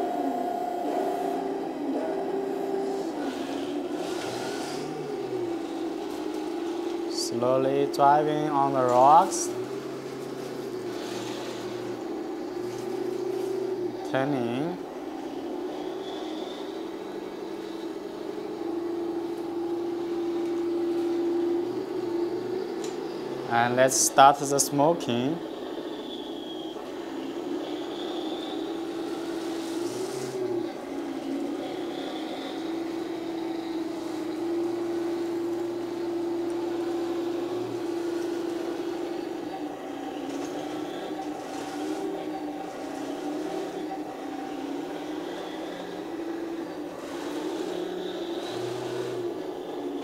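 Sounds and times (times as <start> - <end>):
toy tank mechanical whir: 2.8 - 7.2, 25.6 - 50.0.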